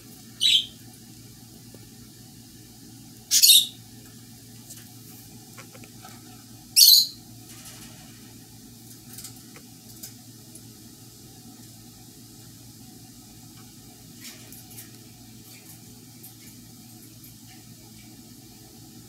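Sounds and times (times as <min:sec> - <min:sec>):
shrill chirps: 0:00.4 - 0:00.8, 0:03.3 - 0:03.8, 0:06.8 - 0:07.2.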